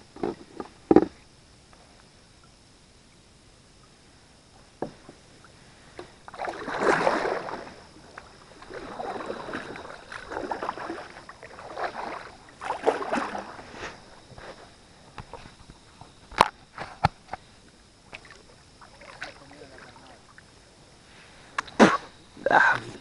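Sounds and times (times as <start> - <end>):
paddle splashing in water: 5.9 - 20.6.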